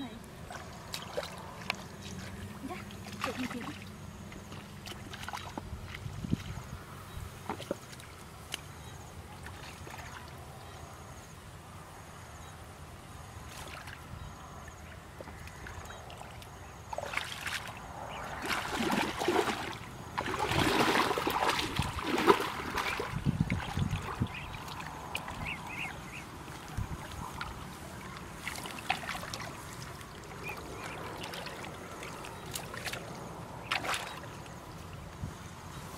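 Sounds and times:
muddy water splashing and sloshing: 0:00.0 - 0:10.9, 0:13.4 - 0:35.9.

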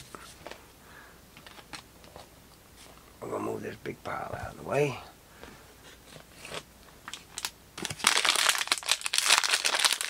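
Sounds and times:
wrapper crinkling and tearing: 0:06.4 - 0:10.0.

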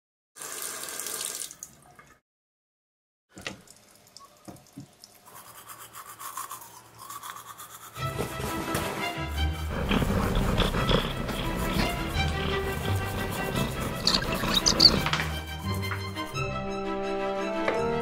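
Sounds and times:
toothbrush scrubbing: 0:05.2 - 0:15.9
toothbrush scraping against sink: 0:05.2 - 0:16.0
music: 0:08.0 - 0:18.0.

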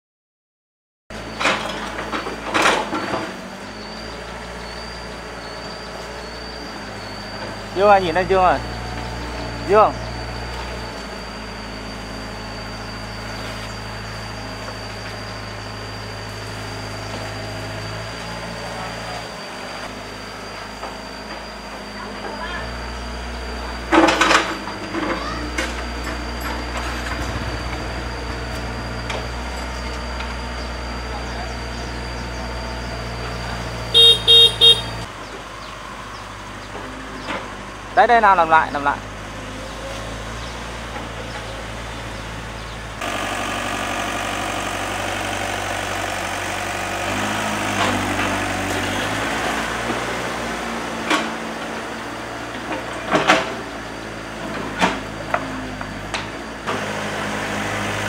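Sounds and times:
excavator diesel engine running: 0:01.1 - 0:58.0
vehicle horn toots: 0:33.9 - 0:35.1.

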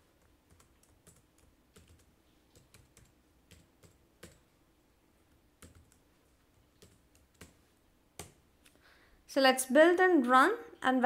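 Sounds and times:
faint keyboard typing: 0:00.0 - 0:04.6, 0:05.2 - 0:08.8.

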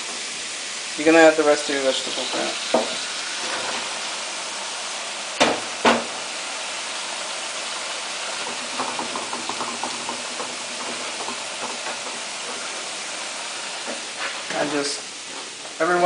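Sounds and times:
vegetables sizzling in a wok: 0:00.0 - 0:16.0
sharp knock: 0:05.4 - 0:06.1.

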